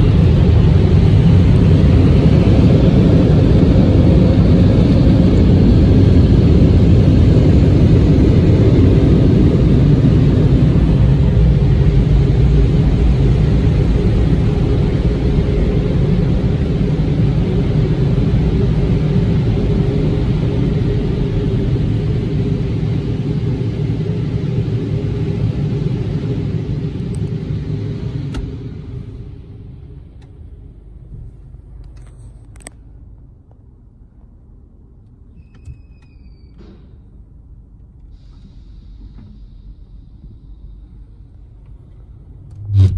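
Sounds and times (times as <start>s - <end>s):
car wash dryer blowers: 0.0s - 31.7s.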